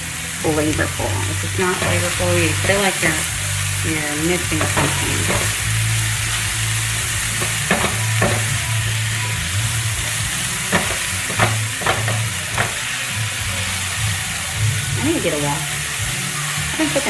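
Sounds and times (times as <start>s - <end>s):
low steady hum: 0.0s - 17.0s
vegetables sizzling in a skillet: 0.0s - 17.0s
spatula scraping a pan: 6.5s - 9.0s, 10.5s - 12.9s.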